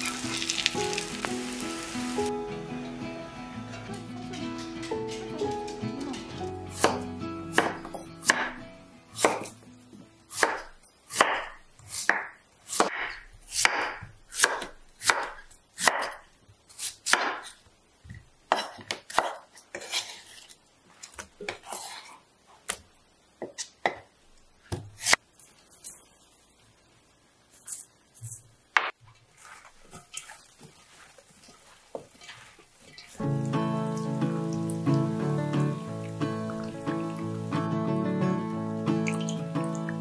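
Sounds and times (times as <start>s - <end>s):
knife chopping on wooden board: 6.8s - 8.6s, 9.2s - 9.5s, 10.4s - 16.2s.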